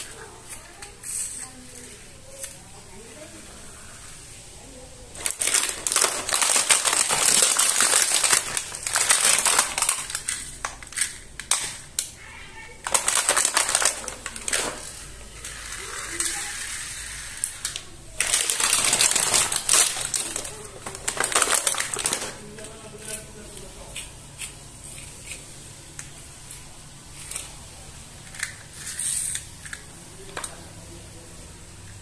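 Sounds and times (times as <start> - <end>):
plastic packaging crinkling: 5.1 - 12.2, 12.8 - 24.0.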